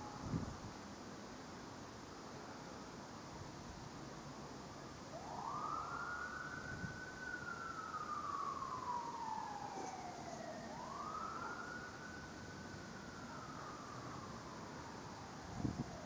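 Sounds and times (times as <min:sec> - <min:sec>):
emergency vehicle siren wailing: 0:05.0 - 0:16.0.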